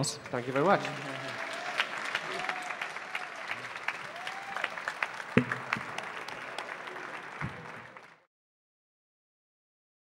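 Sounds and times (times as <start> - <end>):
audience applauding: 0.0 - 8.3
loud knock: 5.4 - 5.9.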